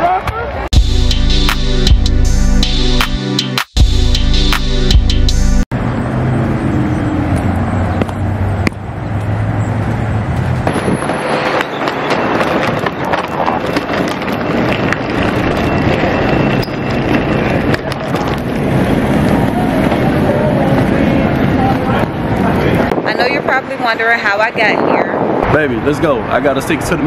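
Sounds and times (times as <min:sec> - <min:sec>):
street traffic: 0:00.0 - 0:27.0
suitcase wheels rolling: 0:09.1 - 0:22.9.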